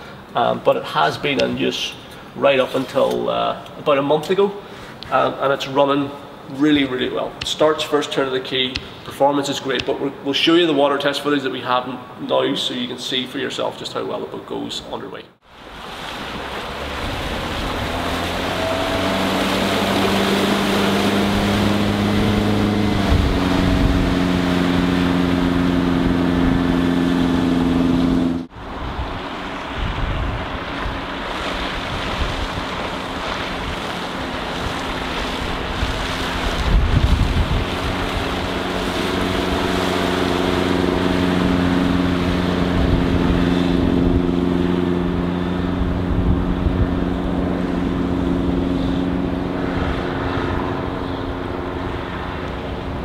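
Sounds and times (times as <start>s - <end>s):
boat engine running: 15.5s - 53.0s
wind noise on microphone: 16.9s - 53.0s.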